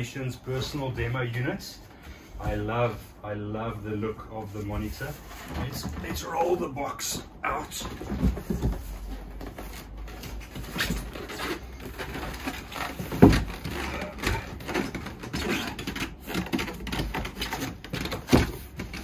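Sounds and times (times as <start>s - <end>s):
cardboard box scraping and knocking: 4.7s - 6.6s, 7.5s - 19.0s.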